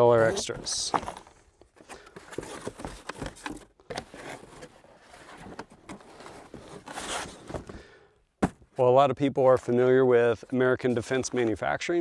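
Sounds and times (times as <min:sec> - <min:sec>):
cardboard box being handled: 0:00.1 - 0:07.8, 0:08.4 - 0:08.6.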